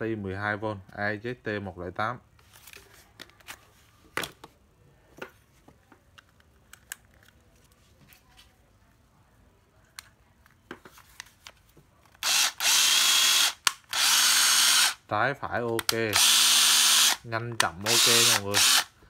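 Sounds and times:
cordless drill motor running: 12.2 - 15.0, 16.1 - 17.2, 17.8 - 18.9.

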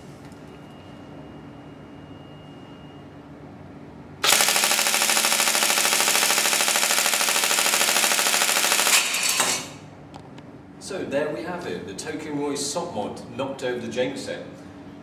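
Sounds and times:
airsoft gun firing full-auto: 4.2 - 9.8.

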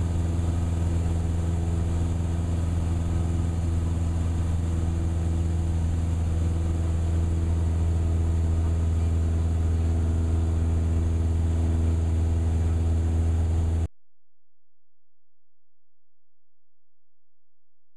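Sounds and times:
propeller plane engine drone: 0.0 - 13.9.

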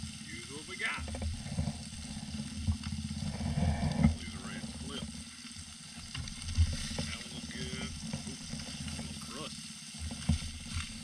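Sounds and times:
fish fillets sizzling in pan: 4.2 - 11.0.

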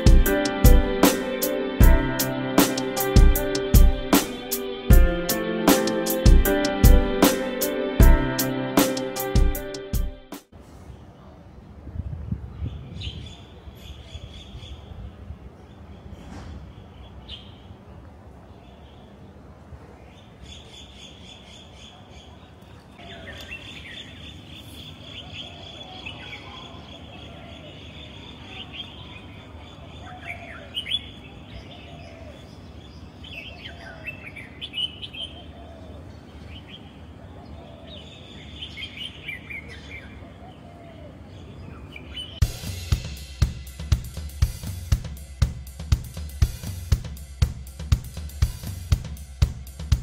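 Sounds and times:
birds chirping and singing: 20.1 - 42.4
lower repeated bird calls: 23.0 - 42.5.

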